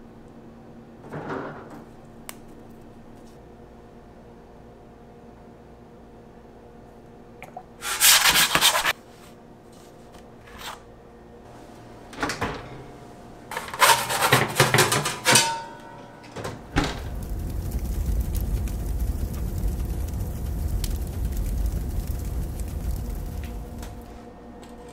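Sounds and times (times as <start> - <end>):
oven door and rack clattering: 12.1 - 19.7
steady low rumble: 16.6 - 24.5.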